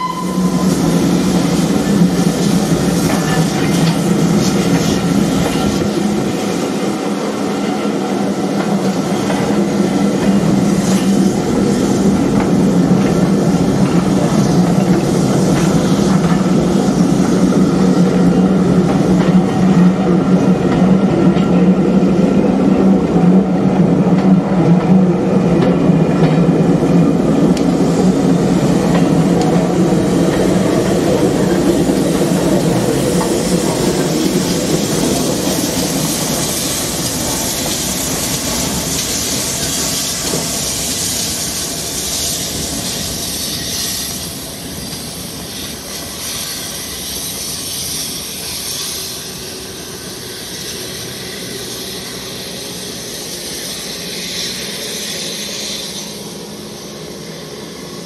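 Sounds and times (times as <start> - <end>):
steam hiss: 0.0 - 24.1, 25.1 - 58.0
train low rumble: 0.0 - 58.0.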